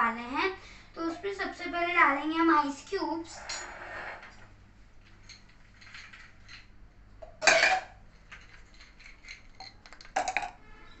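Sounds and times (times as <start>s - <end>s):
ice cubes clinking in glass: 7.4s - 10.6s.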